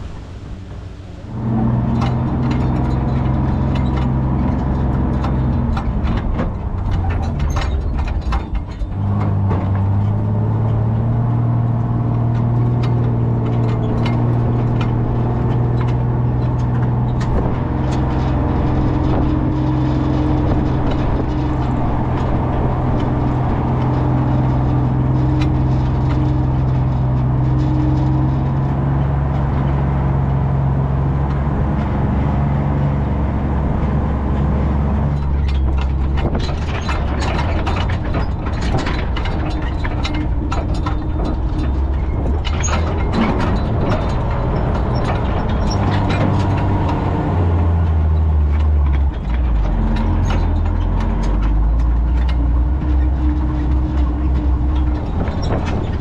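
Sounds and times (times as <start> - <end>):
body panels rattling and clanking: 0.0 - 56.0
truck engine running: 0.0 - 56.0.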